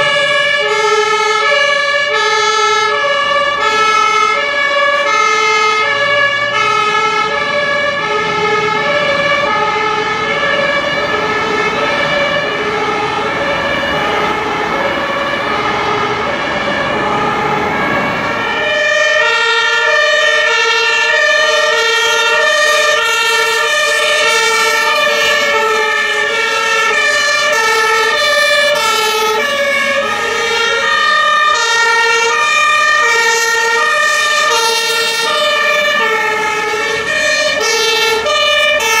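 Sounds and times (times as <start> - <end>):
truck engines rumbling: 0.0 - 39.0
two-tone sirens: 0.0 - 39.0.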